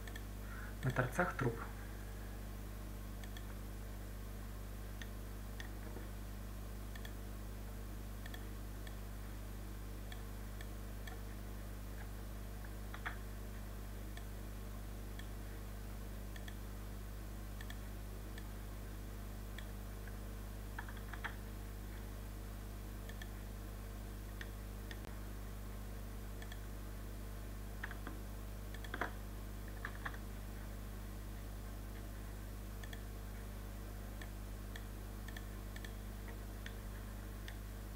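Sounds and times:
computer mouse clicking: 0.0s - 0.9s, 3.2s - 3.6s, 6.9s - 7.2s, 8.2s - 9.0s, 10.1s - 11.2s, 12.9s - 13.2s, 16.3s - 16.6s, 17.6s - 18.5s, 20.8s - 21.4s, 23.0s - 23.4s, 24.4s - 25.1s, 26.4s - 26.7s, 27.8s - 30.2s, 32.8s - 33.1s, 34.2s - 36.8s
low electrical hum: 0.0s - 37.9s.

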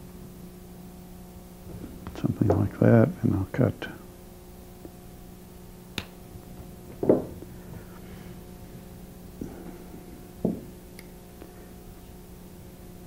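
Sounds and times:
steady electrical hum: 0.0s - 13.0s
dull knocks: 7.0s - 7.4s.

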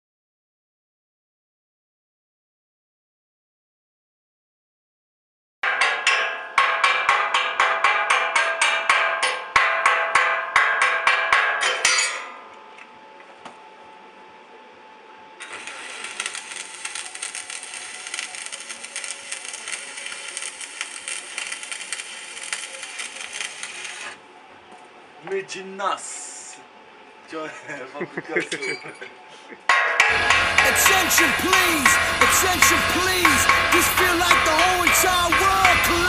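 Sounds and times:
hammer striking steel: 5.6s - 12.4s, 29.7s - 36.0s
welding arc crackling: 15.4s - 24.2s, 30.0s - 36.0s.

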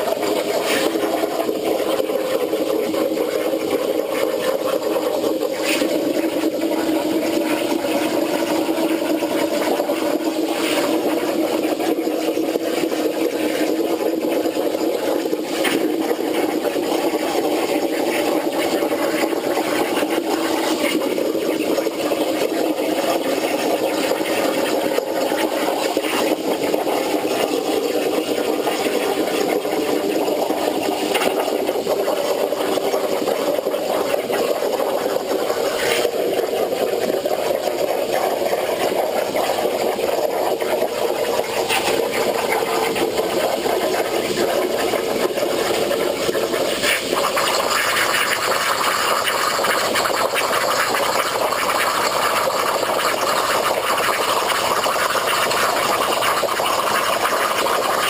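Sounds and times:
plasma torch cutting steel: 22.4s - 57.5s.

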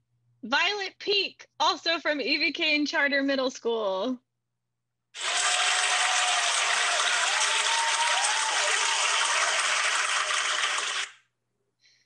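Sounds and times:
crowd applause: 5.2s - 11.1s
faint cheers: 5.2s - 11.1s.

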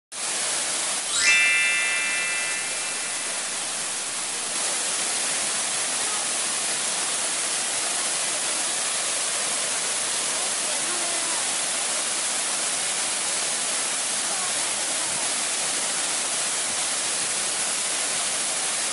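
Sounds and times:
waterfall rushing: 0.9s - 15.4s
bright ringing chime: 1.1s - 4.5s.

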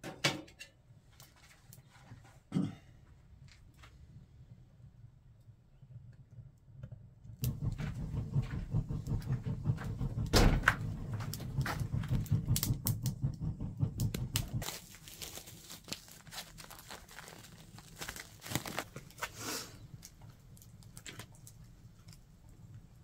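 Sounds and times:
low rumble of stove: 0.4s - 23.0s
wood fire crackling: 1.0s - 2.3s, 3.0s - 23.0s
heavy knock in stove: 7.4s - 14.6s.

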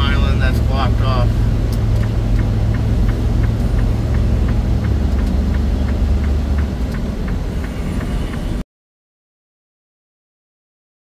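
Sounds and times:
diesel truck engine running: 0.0s - 8.6s
light even ticking: 0.2s - 8.6s.

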